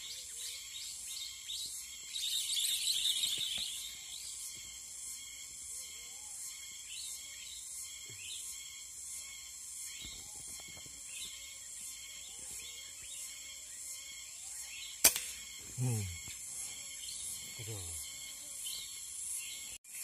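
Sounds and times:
faint bird chirps: 0.0 - 20.0
high pulsing insect buzz: 0.0 - 20.0
sharp crack: 15.0 - 15.5.

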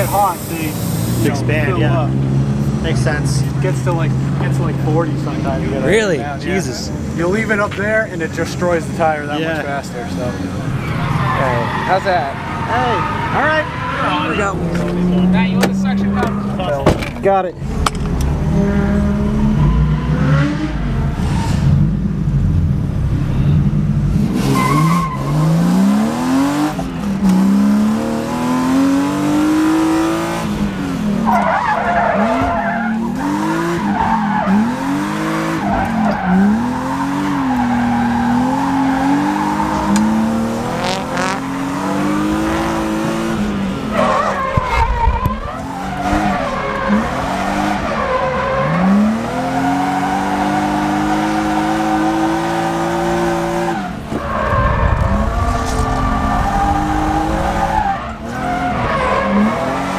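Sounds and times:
car engine revving: 0.0 - 59.9
tyres squealing and skidding: 9.5 - 16.9, 18.6 - 21.8, 24.4 - 26.7, 31.0 - 59.9.

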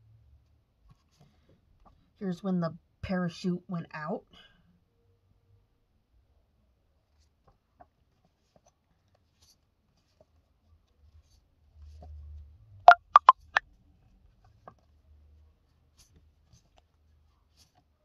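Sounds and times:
sharp taps: 12.9 - 13.6.

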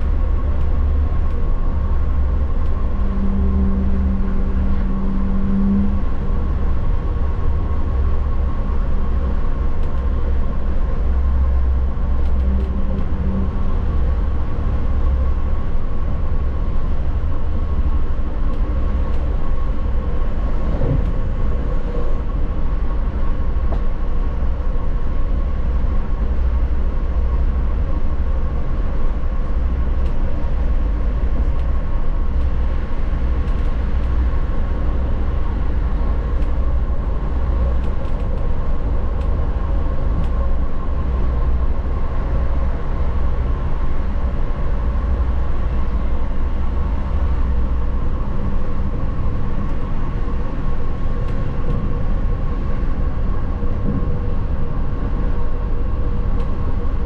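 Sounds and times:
steady hum: 0.0 - 57.0
train running rumble: 0.0 - 57.0.

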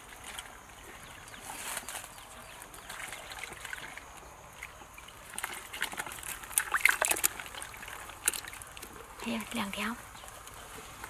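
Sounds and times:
fish splashing and flapping: 0.0 - 11.0
water dripping: 2.6 - 11.0.

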